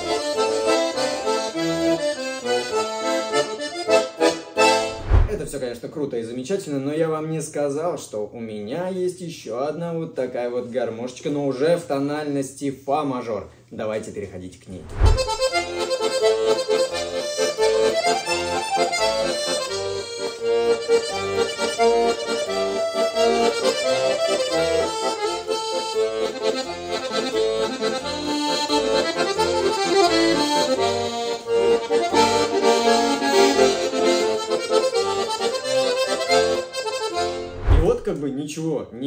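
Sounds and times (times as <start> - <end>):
button accordion playing a tune: 0.0 - 5.5, 15.1 - 37.9.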